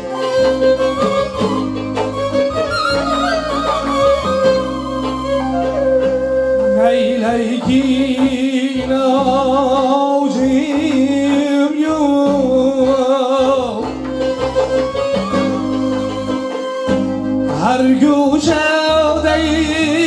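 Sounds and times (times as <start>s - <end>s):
electronic keyboard notes: 0.0s - 9.7s, 10.5s - 20.0s
plucked lute: 0.0s - 20.0s
man singing with vibrato: 6.4s - 14.1s, 17.5s - 20.0s.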